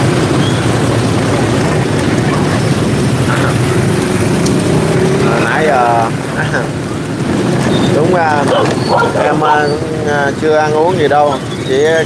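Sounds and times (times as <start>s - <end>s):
large engine droning: 0.0s - 12.0s.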